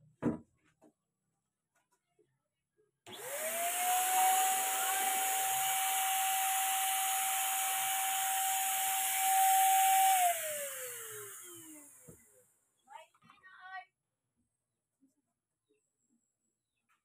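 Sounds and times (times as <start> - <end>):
paint spray gun motor whine: 3.1 - 12.2.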